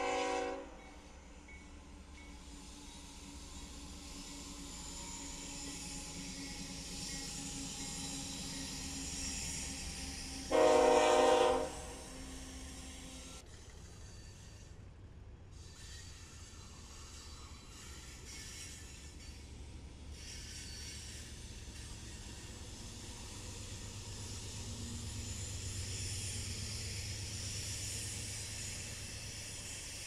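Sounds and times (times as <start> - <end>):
train horn blast: 0.0 - 0.8, 10.5 - 12.3
train rumbling by: 0.0 - 30.0.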